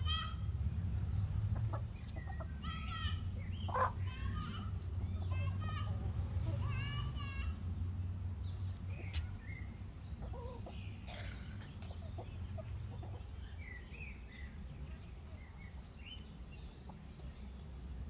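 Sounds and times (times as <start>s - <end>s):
chickens clucking: 1.1s - 6.6s, 8.9s - 14.0s.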